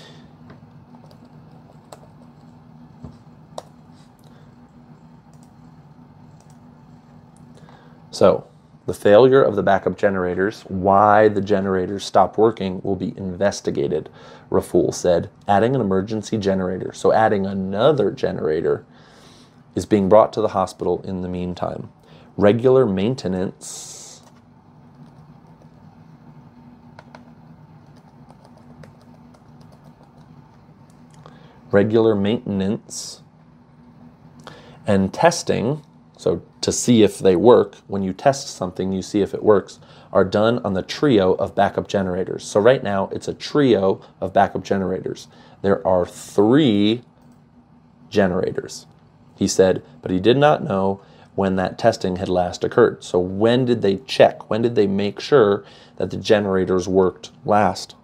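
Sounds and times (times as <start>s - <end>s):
steady low hum: 0.0s - 58.0s
computer keyboard typing: 0.9s - 2.6s, 5.3s - 5.7s, 6.4s - 6.6s, 24.9s - 25.8s, 27.0s - 30.4s
computer keyboard keystrokes: 27.0s - 30.3s.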